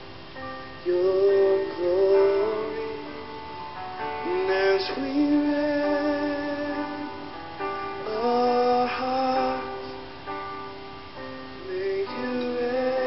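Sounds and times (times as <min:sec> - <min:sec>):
keyboard accompaniment: 0:00.0 - 0:13.0
man singing long notes: 0:00.8 - 0:03.3, 0:04.2 - 0:07.3, 0:07.9 - 0:10.1, 0:11.6 - 0:13.0.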